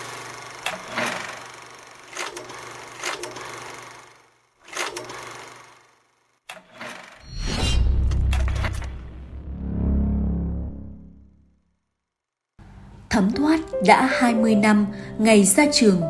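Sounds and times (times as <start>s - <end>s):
film projector whirring and clattering: 0.0s - 7.2s.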